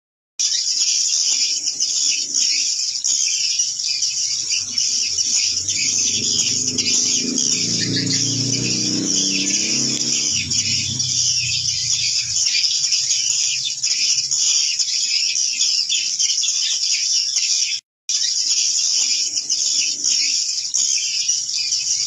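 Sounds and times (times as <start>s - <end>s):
swiftlet calls twittering: 0.5s - 15.6s
low rumble: 4.3s - 12.7s.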